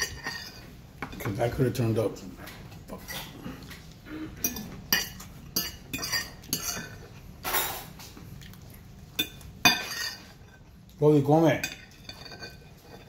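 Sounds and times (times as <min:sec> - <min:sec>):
fork clinking on a plate: 0:04.4 - 0:07.9, 0:09.2 - 0:10.6, 0:11.6 - 0:13.0.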